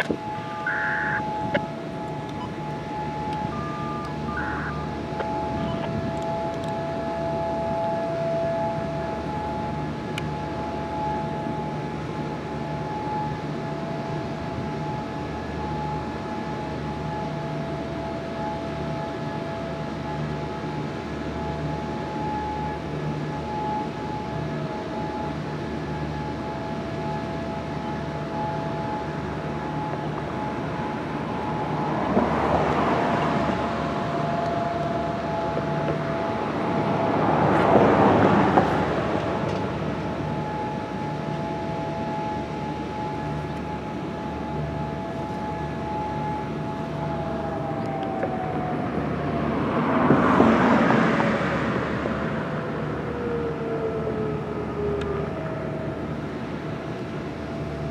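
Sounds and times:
rushing noise: 0:00.0 - 0:02.5
two-tone warning sirens: 0:00.0 - 0:57.9.

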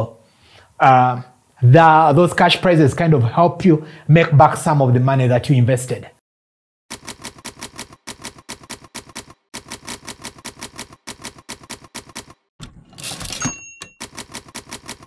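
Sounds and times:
typewriter keys striking: 0:06.9 - 0:15.0
typewriter carriage return slide: 0:07.0 - 0:15.0.

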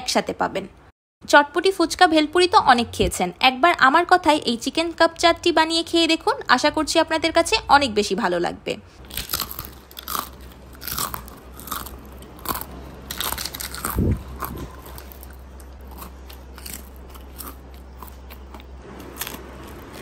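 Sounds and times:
fried pastry cup crunching: 0:09.0 - 0:20.0.

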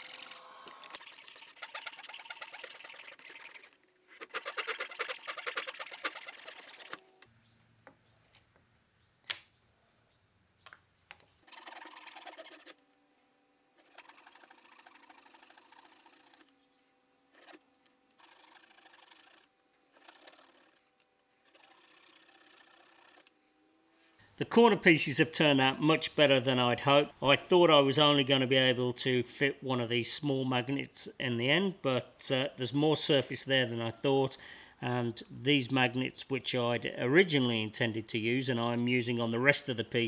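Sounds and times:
handsaw cutting wood: 0:00.0 - 0:07.0, 0:11.5 - 0:12.8, 0:13.8 - 0:16.5, 0:18.2 - 0:20.9.

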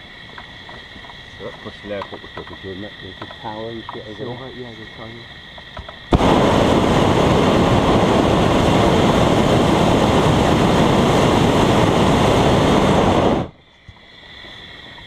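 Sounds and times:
propane burner roaring: 0:06.1 - 0:13.6.

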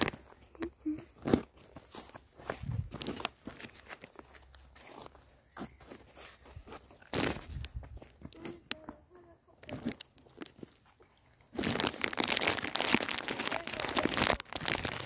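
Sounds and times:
crisp packet crinkling: 0:00.0 - 0:00.3, 0:07.0 - 0:07.7, 0:09.5 - 0:15.0.

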